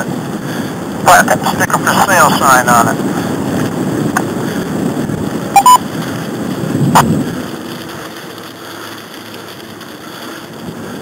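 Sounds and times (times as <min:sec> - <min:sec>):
wind on microphone: 0:00.0 - 0:08.2
bicycle tyres rumbling on trail: 0:00.0 - 0:11.0
radio two-note beep: 0:05.5 - 0:05.8.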